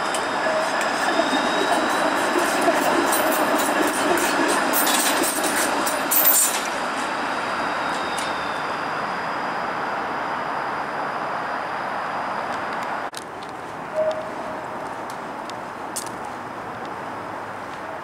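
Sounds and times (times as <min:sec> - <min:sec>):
streetcar wheels clicking over track: 0:00.0 - 0:06.8
streetcar rumble: 0:00.0 - 0:18.0.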